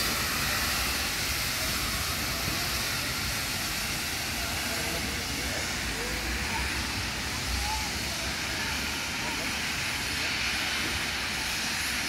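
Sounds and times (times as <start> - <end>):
steam hissing: 0.0 - 12.0
steam locomotive pulling away: 0.0 - 12.0.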